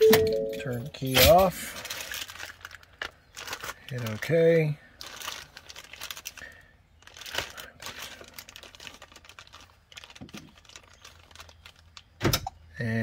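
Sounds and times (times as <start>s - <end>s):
keypad button clicks: 0.0s - 0.6s.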